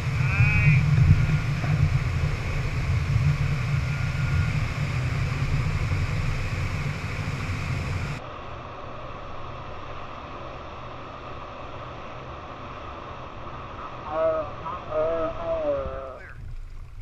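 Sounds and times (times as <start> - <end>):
boat engine rumbling: 0.0 - 8.2, 10.4 - 17.0
wind on microphone: 0.0 - 8.2.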